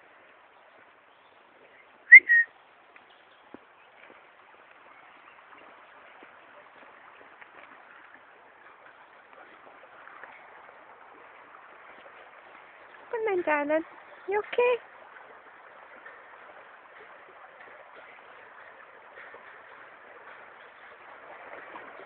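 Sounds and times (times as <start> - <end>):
person whistling two-note call: 2.1 - 2.5.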